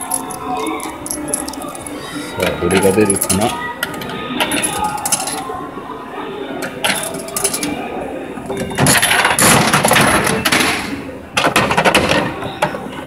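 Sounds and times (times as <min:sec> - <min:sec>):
coins clicking into slot: 0:00.0 - 0:02.0.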